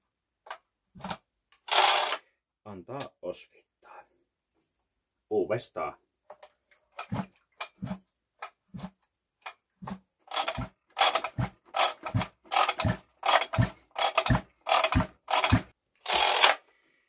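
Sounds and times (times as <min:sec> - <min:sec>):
chainsaw engine turning over: 0:01.0 - 0:02.2, 0:10.3 - 0:16.6.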